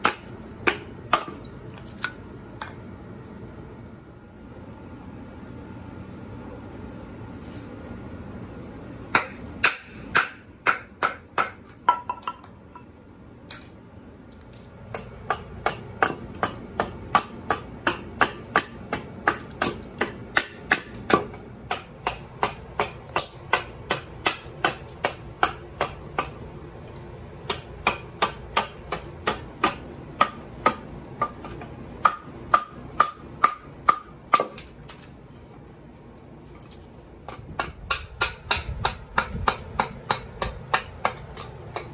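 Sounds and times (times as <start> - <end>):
axe chopping wood: 0.0 - 2.1, 9.2 - 12.4, 14.9 - 26.4, 27.4 - 35.1, 37.3 - 41.9.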